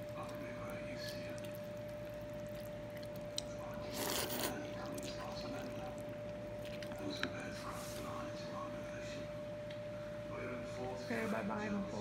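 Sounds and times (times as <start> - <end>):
chopsticks working noodles: 0.0 - 7.8
faint hum: 0.0 - 12.0
wet slurp: 0.1 - 7.2.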